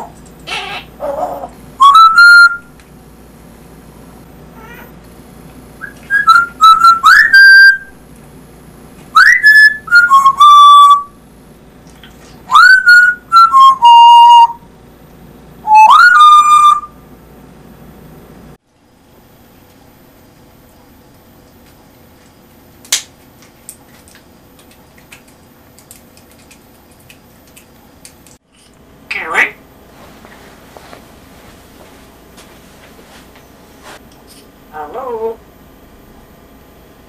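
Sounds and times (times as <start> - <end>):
parrot whistling: 0.0 - 2.7, 5.8 - 7.9, 9.2 - 11.2, 12.5 - 14.6, 15.6 - 17.0.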